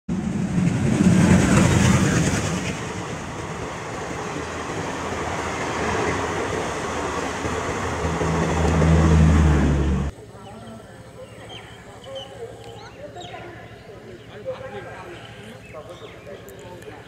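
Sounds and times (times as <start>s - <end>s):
train wheels on rails: 0.1s - 10.1s.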